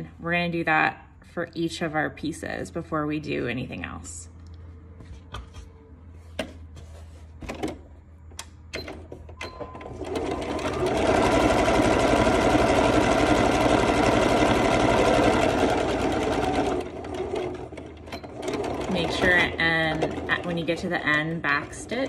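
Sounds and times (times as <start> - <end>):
electric sewing machine running: 9.8 - 22.0.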